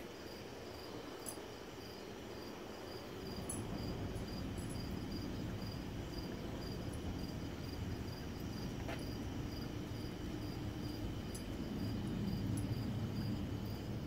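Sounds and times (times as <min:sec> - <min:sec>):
continuous insect trill: 0:00.0 - 0:14.0
crickets chirping: 0:00.0 - 0:14.0
low background rumble: 0:03.2 - 0:14.0.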